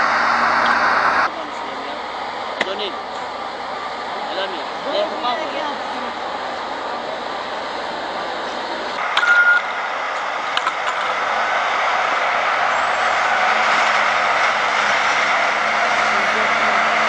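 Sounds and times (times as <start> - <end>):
snowcat engines humming: 0.0 - 17.0
short beep: 9.1 - 9.7.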